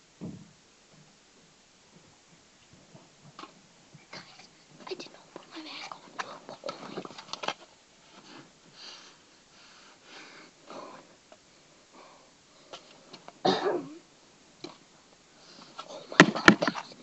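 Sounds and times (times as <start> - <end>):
child breathing and sniffing: 8.0 - 11.2.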